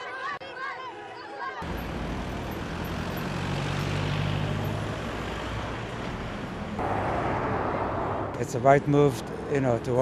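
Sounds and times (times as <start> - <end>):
car driving past: 1.6 - 8.6
traffic noise: 1.6 - 10.0.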